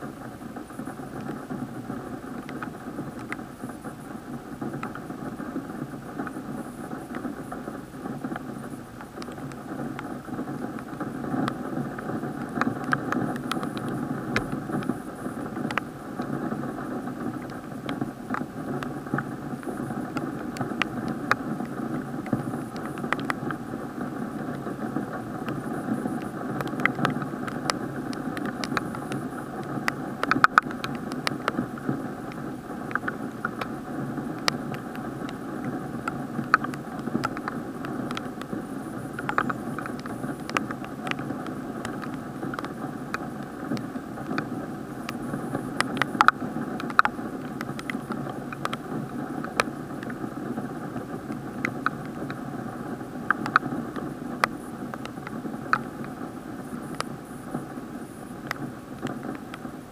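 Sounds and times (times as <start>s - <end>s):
muffled rain hiss: 0.0s - 59.9s
raindrops tapping plastic housing: 0.6s - 3.9s, 4.6s - 56.2s.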